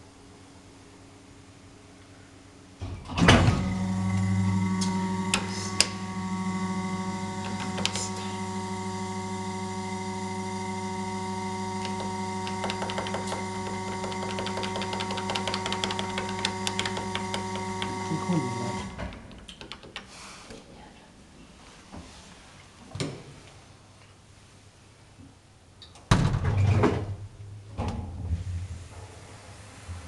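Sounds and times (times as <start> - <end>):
elevator electric hum: 0.0 - 20.0.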